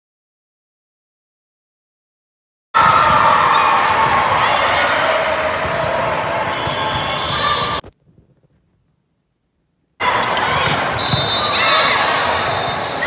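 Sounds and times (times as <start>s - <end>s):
players' voices: 2.8s - 7.9s, 10.0s - 13.0s.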